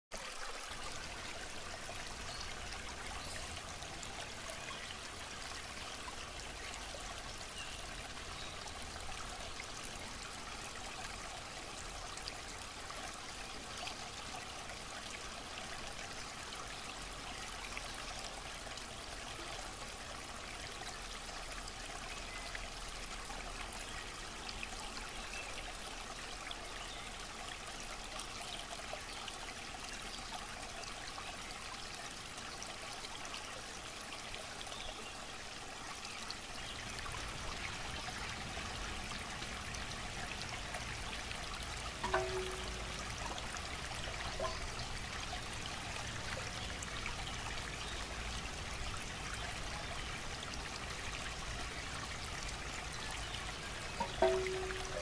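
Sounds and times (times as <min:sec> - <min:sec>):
water running and trickling: 0:00.1 - 0:55.0
small water splashes: 0:33.2 - 0:55.0.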